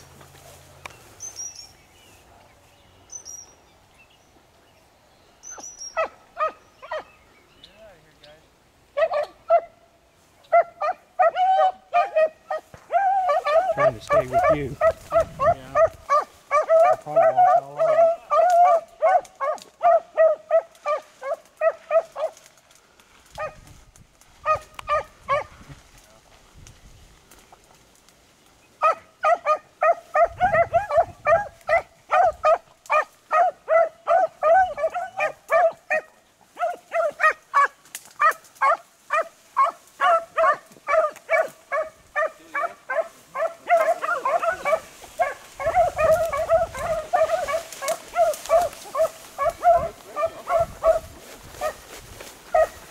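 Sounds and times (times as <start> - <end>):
dogs baying: 5.5 - 7.1, 9.0 - 9.8, 10.5 - 22.4, 24.4 - 25.5, 28.8 - 51.9, 52.5 - 52.9.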